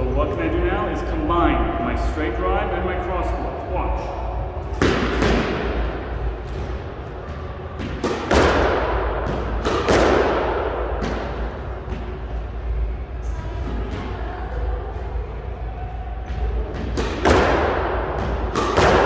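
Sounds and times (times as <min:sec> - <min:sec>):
squash ball hits echoing: 0:04.4 - 0:15.0, 0:15.9 - 0:19.0.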